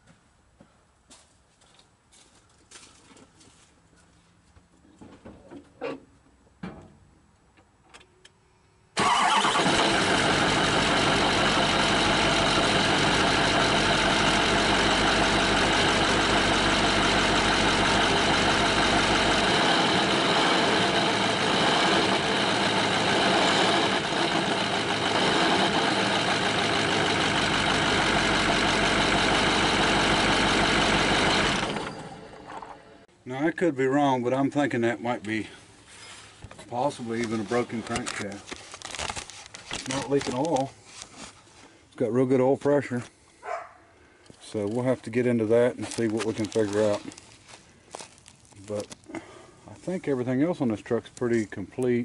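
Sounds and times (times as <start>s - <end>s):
diesel engine starting and idling: 8.9s - 33.1s.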